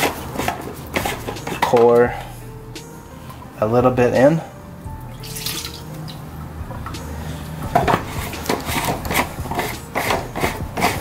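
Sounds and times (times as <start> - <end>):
liquid pouring from a bottle: 5.2 - 5.9
plastic cap clicking and scraping: 7.8 - 11.0.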